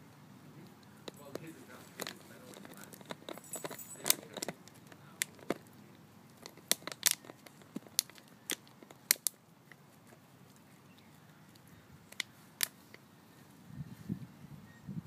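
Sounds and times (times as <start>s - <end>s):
plastic bottle crinkling: 0.9s - 12.9s.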